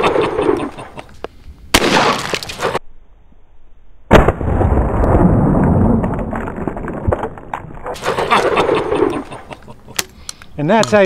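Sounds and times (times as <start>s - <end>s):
shotgun blasts: 1.7s - 2.8s, 4.1s - 4.6s.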